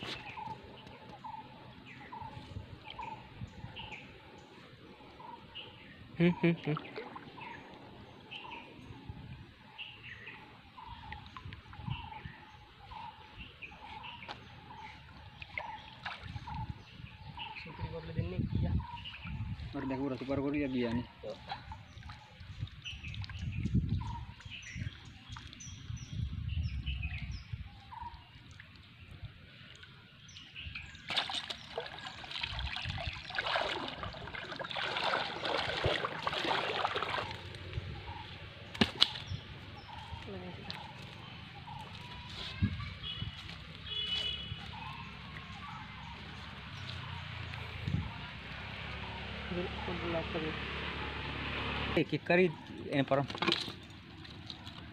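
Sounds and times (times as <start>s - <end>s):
water sloshing and splashing: 6.6s - 8.7s, 13.2s - 17.0s, 21.3s - 25.9s, 28.2s - 47.5s, 52.6s - 54.9s.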